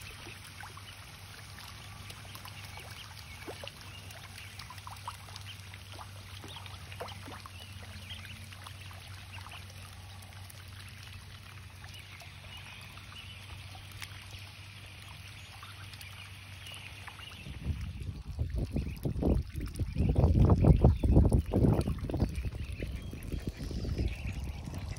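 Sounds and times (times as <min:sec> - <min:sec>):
ducklings dabbling in shallow water: 0:00.0 - 0:24.9
ducklings peeping: 0:15.0 - 0:24.9
loud low rumbling bursts: 0:21.8 - 0:24.9.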